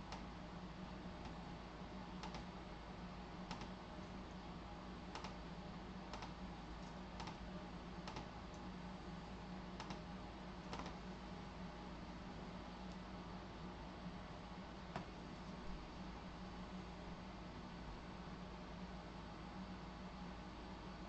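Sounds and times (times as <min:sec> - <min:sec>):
low steady hum: 0:00.0 - 0:21.0
computer keys clicking: 0:02.2 - 0:02.5, 0:03.5 - 0:03.8, 0:05.1 - 0:05.4, 0:06.1 - 0:07.4, 0:08.0 - 0:08.6, 0:09.8 - 0:10.0, 0:10.6 - 0:11.0.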